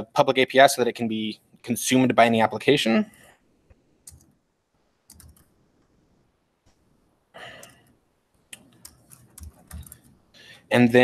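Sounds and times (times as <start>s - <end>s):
faint keyboard typing: 4.0s - 4.4s, 5.0s - 6.0s, 7.4s - 10.2s.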